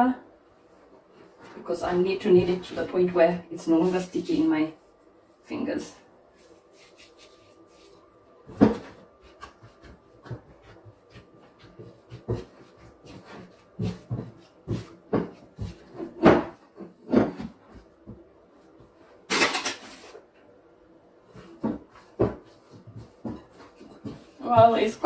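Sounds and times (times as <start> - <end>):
dough squelching: 6.2 - 16.2, 21.3 - 25.0
dough thumps: 6.7 - 19.0, 21.3 - 25.0.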